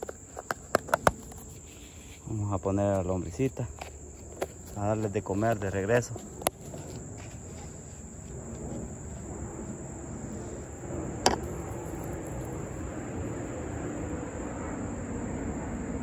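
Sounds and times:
high-pitched insect drone: 0:06.4 - 0:16.0.

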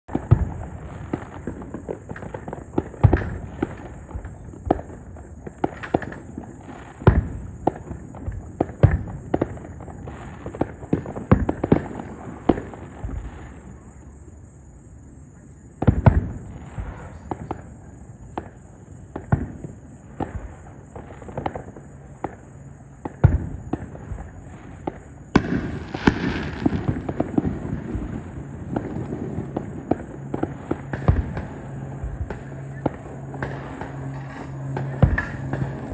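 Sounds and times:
fireworks bangs and crackling: 0:00.0 - 0:35.9
dense background noise: 0:00.1 - 0:35.9.

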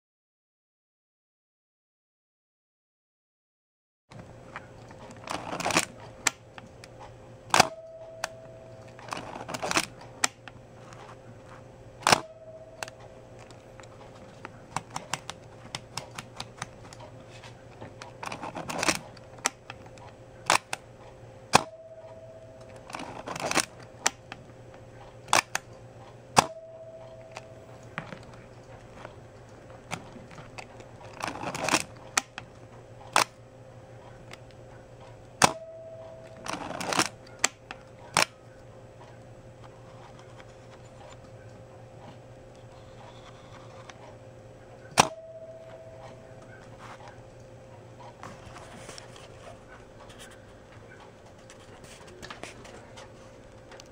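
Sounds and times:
film-advance lever rattling clicks: 0:04.8 - 0:11.1, 0:17.8 - 0:20.8, 0:22.6 - 0:24.4, 0:29.9 - 0:33.4, 0:36.2 - 0:38.4.

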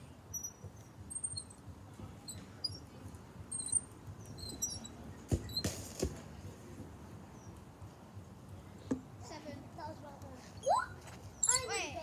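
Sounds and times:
short scuff: 0:05.3 - 0:06.3.

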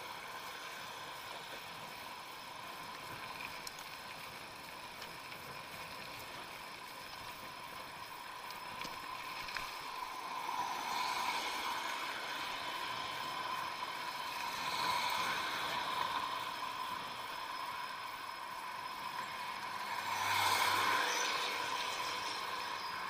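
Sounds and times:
electric motor whine: 0:19.2 - 0:23.0.

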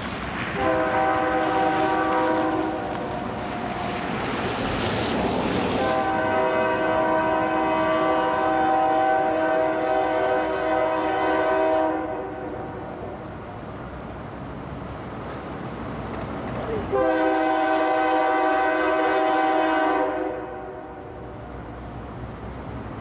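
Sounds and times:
locomotive air horn: 0:00.5 - 0:03.1, 0:05.8 - 0:13.0, 0:16.9 - 0:21.1.

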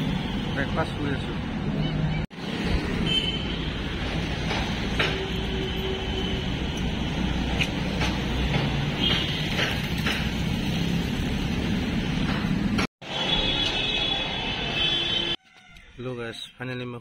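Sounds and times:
traffic rumble: 0:00.0 - 0:14.9.

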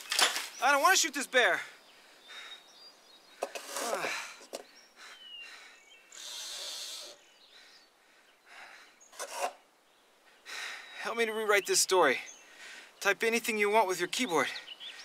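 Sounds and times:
faint bird chirps: 0:01.6 - 0:13.0
correction tape roller scraping: 0:03.4 - 0:04.1, 0:09.2 - 0:09.6.

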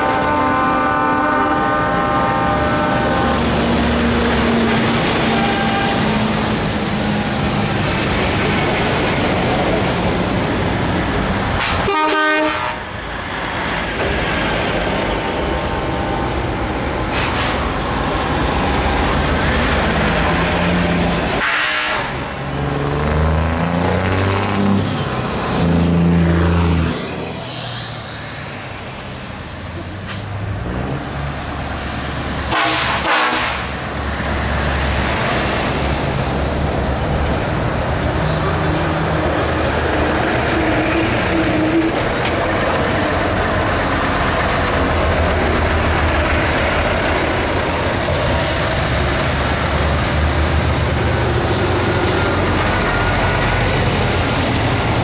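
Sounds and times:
diesel trucks passing: 0:00.0 - 0:55.0.

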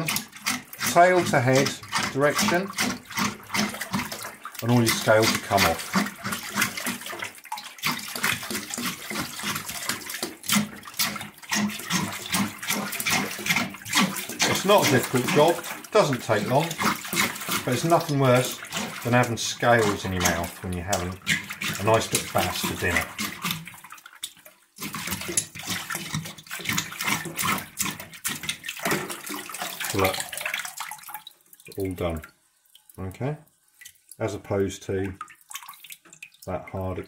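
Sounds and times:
tap running into sink: 0:00.0 - 0:23.7
fish descaler scraping: 0:00.0 - 0:23.9, 0:24.8 - 0:31.0
water splashing in a steel sink: 0:00.0 - 0:37.0.

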